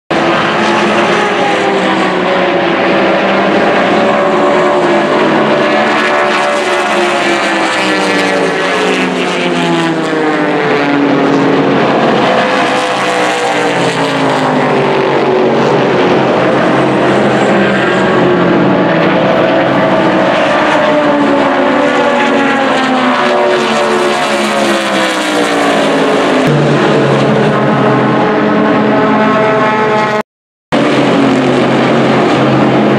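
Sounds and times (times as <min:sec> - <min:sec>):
race car engines passing: 0:00.1 - 0:30.2, 0:30.8 - 0:32.9.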